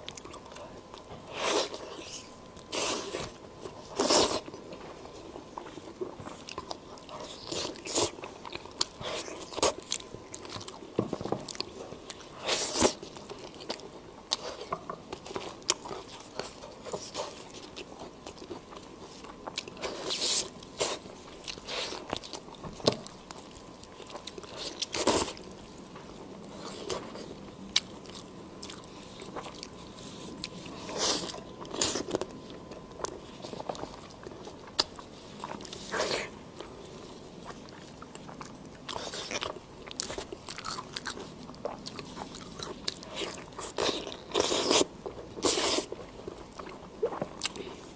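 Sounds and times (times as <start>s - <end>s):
chewing chicken: 0.0s - 47.9s
crunchy bites: 37.4s - 46.0s.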